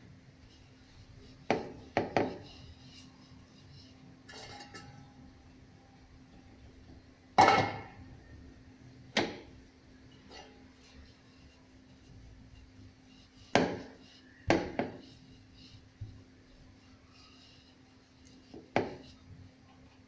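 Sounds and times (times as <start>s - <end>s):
rolling pin knocking on wood: 1.5s - 2.4s, 13.6s - 13.8s, 18.6s - 19.0s
soft rustle: 10.0s - 20.0s.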